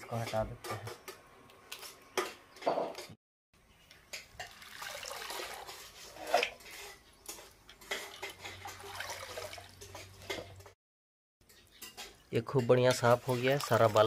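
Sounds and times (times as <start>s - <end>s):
water splashing and dripping: 4.1s - 6.5s, 7.2s - 10.8s, 12.6s - 14.0s.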